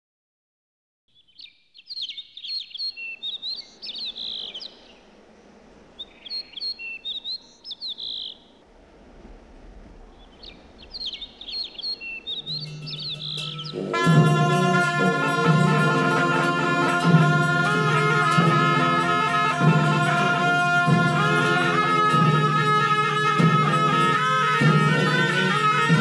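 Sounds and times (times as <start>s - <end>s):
bird singing: 1.1s - 5.2s, 6.0s - 8.6s, 10.2s - 18.2s
faint background hiss: 1.2s - 26.0s.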